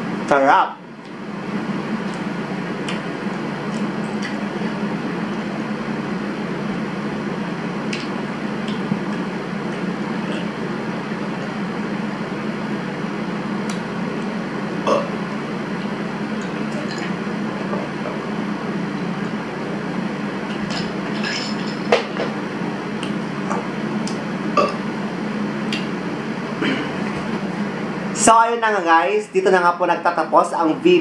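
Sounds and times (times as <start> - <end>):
steady background hum: 0.0 - 31.0
person drinking: 8.7 - 11.4, 14.8 - 15.3, 24.5 - 24.8, 26.6 - 27.3.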